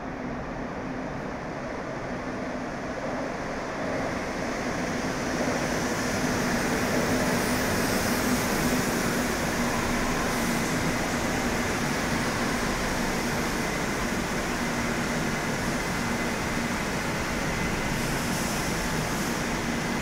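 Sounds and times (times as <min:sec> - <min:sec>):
metro train running: 0:00.0 - 0:20.0.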